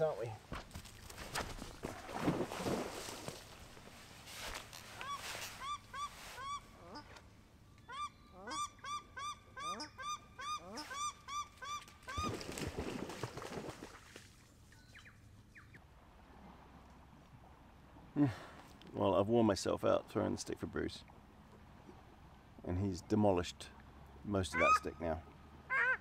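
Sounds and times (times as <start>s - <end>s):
shelducks honking alarm calls: 4.9s - 7.2s, 7.8s - 12.3s, 24.4s - 25.0s, 25.7s - 26.0s.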